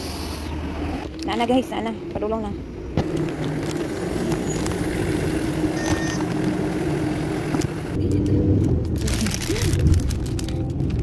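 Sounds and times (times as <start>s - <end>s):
minibus engine droning: 0.0s - 8.8s
road rumble inside moving bus: 0.0s - 11.0s.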